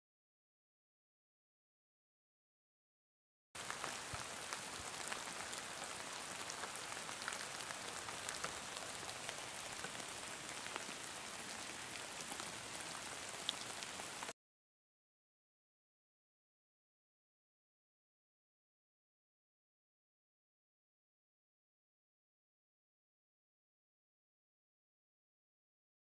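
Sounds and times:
steady rain falling: 3.6s - 14.3s.

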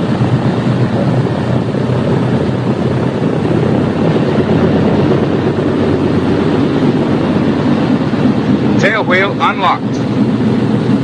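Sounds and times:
propeller aircraft engines running: 0.0s - 11.0s.

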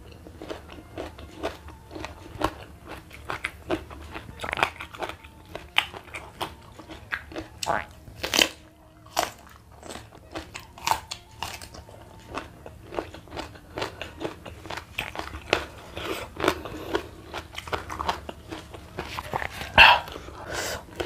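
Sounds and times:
close-up crunchy chewing: 0.0s - 21.0s
crunchy bite: 10.6s - 11.8s.

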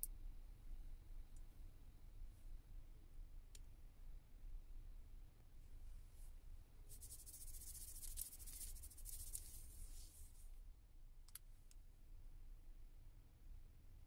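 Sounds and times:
fingertip rubbing on skin: 6.9s - 10.3s
small clicks: 11.2s - 11.8s.

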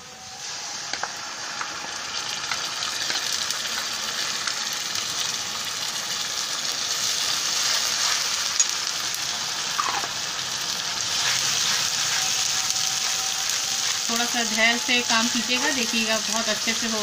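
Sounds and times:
paste sizzling in hot oil: 0.2s - 17.0s
metal spatula scraping pan: 11.1s - 15.9s.

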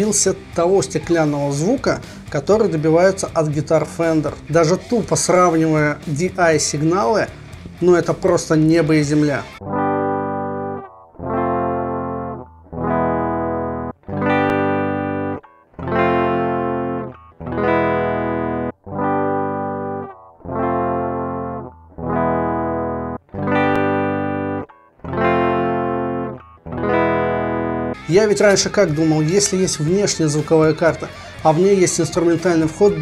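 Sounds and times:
electric guitar chords: 0.0s - 33.0s.

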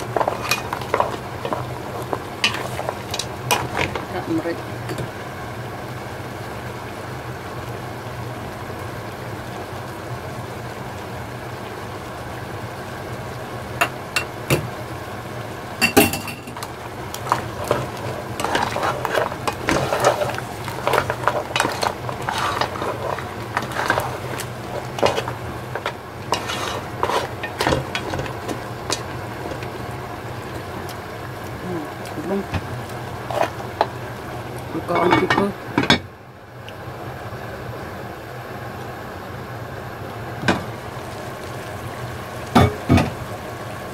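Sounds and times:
spatula scraping shells in pot: 0.0s - 4.2s, 16.4s - 29.8s, 32.6s - 34.0s
food sizzling in a pot: 0.0s - 43.9s.

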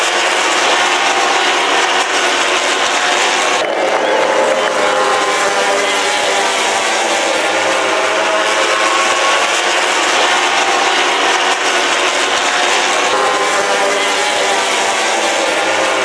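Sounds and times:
racing motorcycles passing: 0.0s - 16.0s.

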